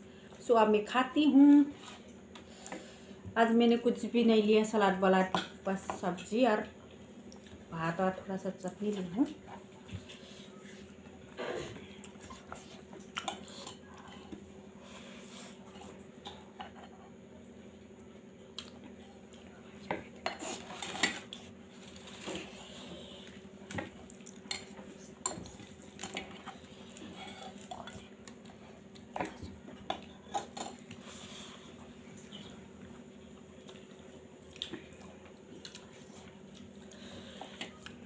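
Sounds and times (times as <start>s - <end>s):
faint low hum: 0.0s - 38.0s
chewing: 20.2s - 32.6s, 33.4s - 38.0s.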